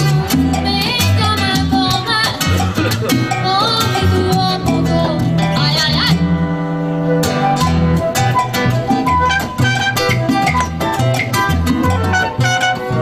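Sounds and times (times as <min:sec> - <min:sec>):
bass line: 0:00.0 - 0:13.0
congas: 0:00.0 - 0:13.0
live salsa band: 0:00.0 - 0:13.0
flute and trumpet melody: 0:06.3 - 0:13.0.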